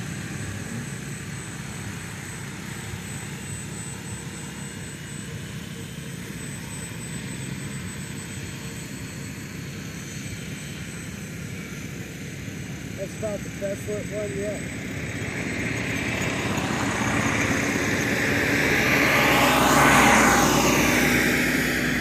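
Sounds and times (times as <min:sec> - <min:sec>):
model helicopter whirring: 0:00.0 - 0:22.0.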